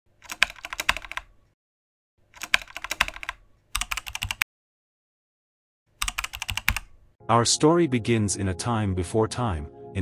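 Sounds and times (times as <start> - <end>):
keyboard typing clicks: 0.2 - 1.3, 2.3 - 4.4, 6.0 - 7.0.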